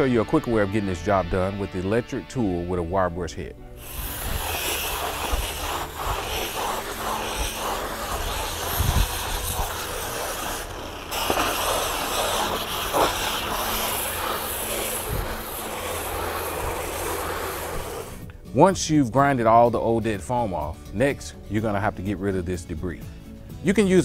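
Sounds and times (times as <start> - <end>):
wire brush grinder scraping: 3.8 - 18.2.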